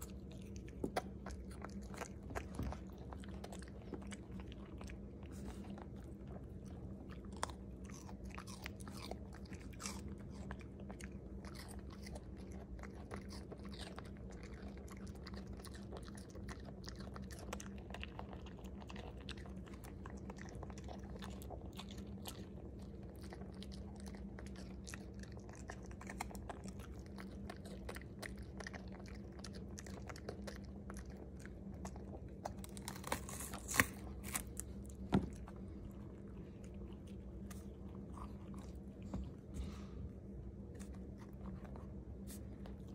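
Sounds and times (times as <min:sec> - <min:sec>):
dog crunching food: 0:00.0 - 0:39.9, 0:40.6 - 0:42.9
low hum: 0:22.3 - 0:42.9.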